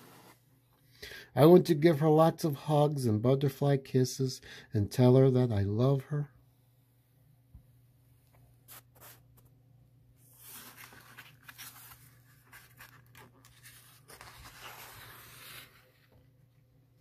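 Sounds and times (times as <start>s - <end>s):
paper pages rustling: 8.7s - 9.6s, 10.2s - 16.6s.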